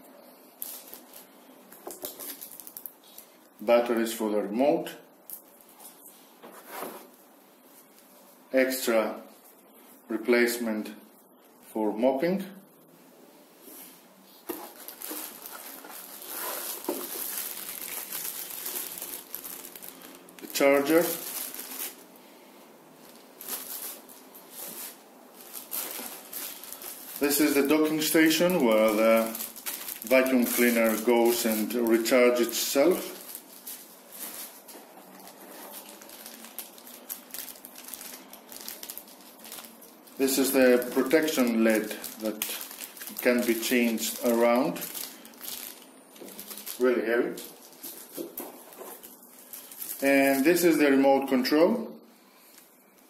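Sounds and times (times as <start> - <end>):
plastic bag crinkling: 0.6 - 3.7, 14.4 - 22.2, 22.9 - 51.0.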